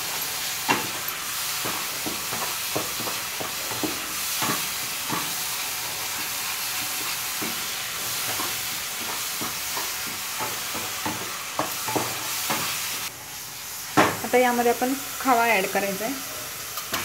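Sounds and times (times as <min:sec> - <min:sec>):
spatula scraping and knocking pan: 0:00.0 - 0:13.1
mixture sizzling in a pan: 0:00.0 - 0:17.0.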